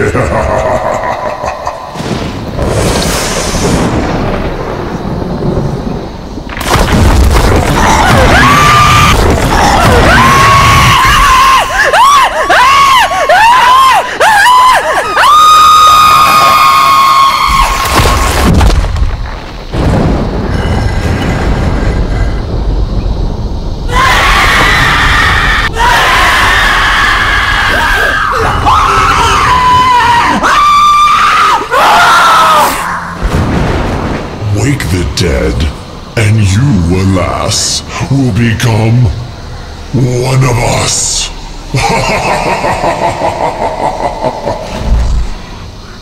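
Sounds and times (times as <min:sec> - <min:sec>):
person screaming: 0:07.8 - 0:17.6.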